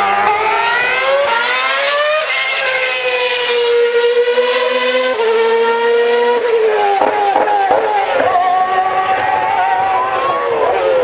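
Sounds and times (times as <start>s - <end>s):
race car engine at high revs: 0.0s - 11.0s.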